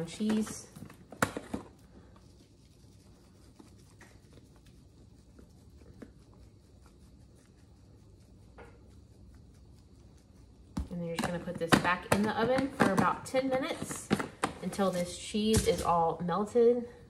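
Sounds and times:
grated cheese pattering: 0:01.7 - 0:11.1.

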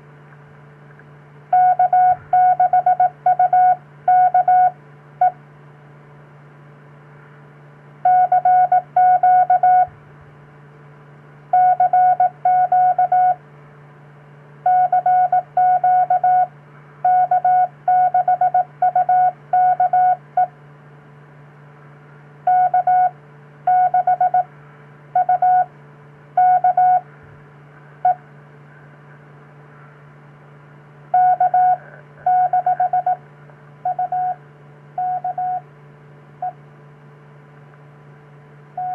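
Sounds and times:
steady low hum: 0:00.0 - 0:38.9
morse code beeps: 0:01.5 - 0:04.7, 0:08.1 - 0:09.9, 0:11.6 - 0:13.4, 0:14.7 - 0:16.5, 0:17.1 - 0:20.2, 0:22.5 - 0:23.1, 0:23.7 - 0:24.5, 0:25.2 - 0:25.7, 0:26.4 - 0:27.0, 0:31.2 - 0:33.2, 0:33.9 - 0:34.4, 0:35.0 - 0:35.6.

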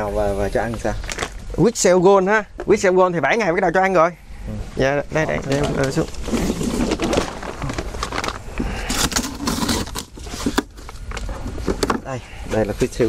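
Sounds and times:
rustling and crinkling packaging: 0:00.6 - 0:01.6, 0:05.3 - 0:12.2.

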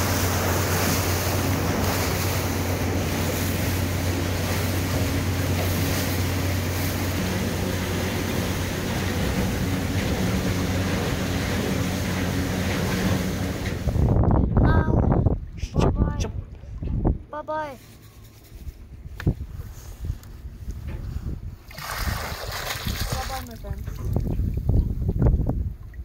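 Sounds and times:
rush of boat wash: 0:00.0 - 0:14.2, 0:21.1 - 0:26.0
outboard motor running: 0:00.0 - 0:14.5
wind on microphone: 0:13.0 - 0:17.4, 0:18.5 - 0:26.0.

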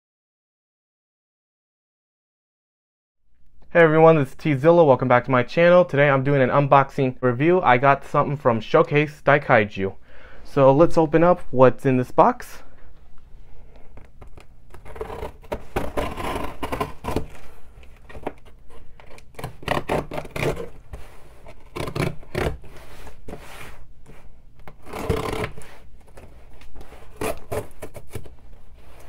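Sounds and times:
cardboard scraping and rubbing: 0:14.7 - 0:29.0
blade slicing packing tape: 0:14.8 - 0:17.4, 0:19.1 - 0:20.8, 0:21.6 - 0:22.7, 0:24.7 - 0:25.7, 0:27.0 - 0:28.3.

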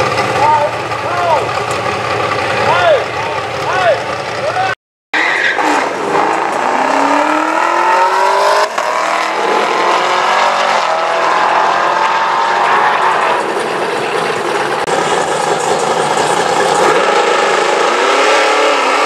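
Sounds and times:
car engine accelerating at full throttle: 0:05.6 - 0:19.0.

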